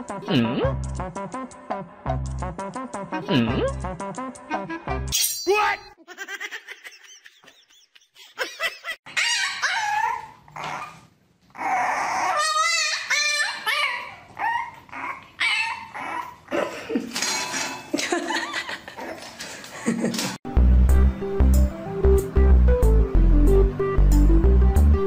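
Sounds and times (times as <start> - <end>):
puppy yipping and whining: 9.1 - 16.5.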